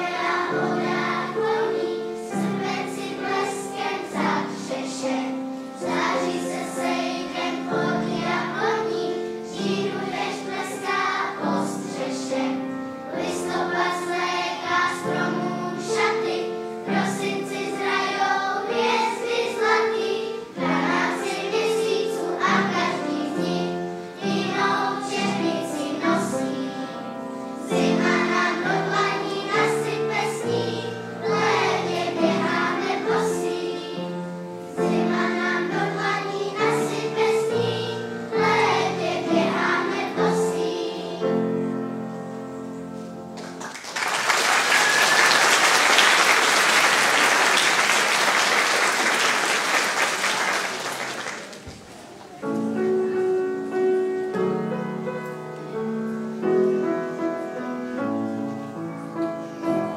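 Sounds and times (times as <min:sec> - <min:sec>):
children's choir singing: 0:00.0 - 0:59.9
audience applause: 0:43.4 - 0:52.0.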